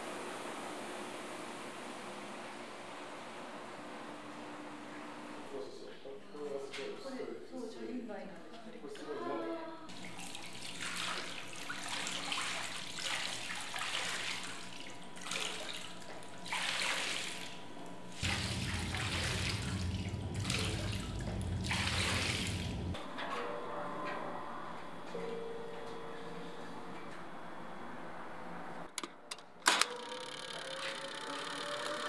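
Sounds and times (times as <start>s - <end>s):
low machine hum: 0.0s - 6.6s, 9.8s - 28.9s
yarn splashing in water: 10.0s - 17.6s, 18.2s - 22.9s.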